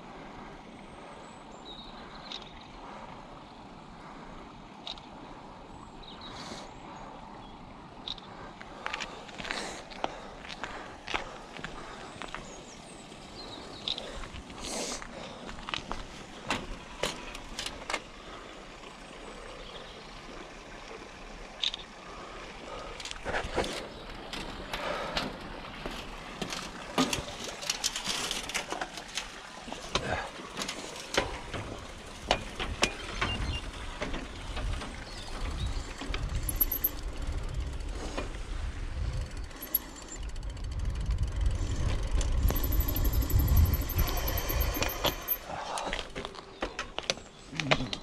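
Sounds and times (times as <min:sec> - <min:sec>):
bike clicks and rattles: 0:08.0 - 0:18.4, 0:22.7 - 0:48.0
bicycle rolling over brick paving: 0:23.2 - 0:45.3
wind buffeting microphone: 0:31.3 - 0:39.6, 0:40.2 - 0:45.4.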